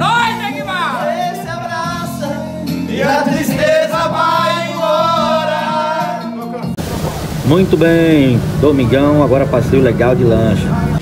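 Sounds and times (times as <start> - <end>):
men singing long held notes: 0.0 - 6.7
music playing: 0.0 - 11.0.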